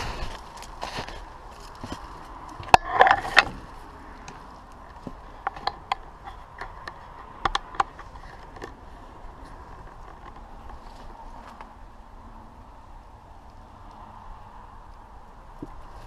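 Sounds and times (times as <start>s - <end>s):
footsteps: 0.0s - 5.8s
handling clicks and knocks: 0.0s - 11.7s
crunching rustle: 0.0s - 11.8s.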